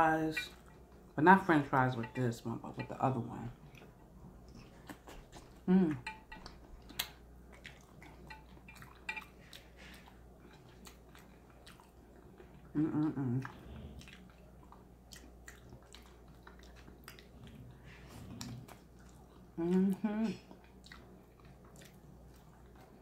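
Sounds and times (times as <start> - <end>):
wet chewing with mouth clicks: 3.6 - 23.0
person humming: 5.6 - 6.0, 12.8 - 13.5, 19.6 - 20.4.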